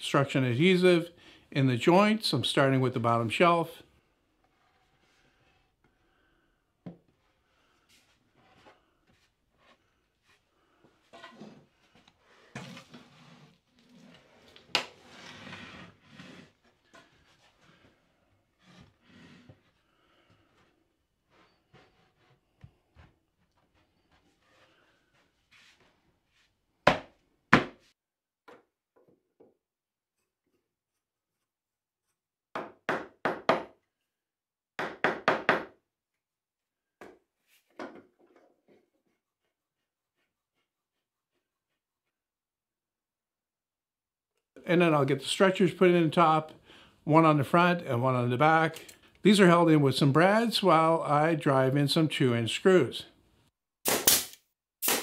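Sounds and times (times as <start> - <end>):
wood panels scraping and knocking: 8.0 - 26.0
hammer striking wood: 26.9 - 27.8, 32.5 - 33.8, 34.8 - 35.8.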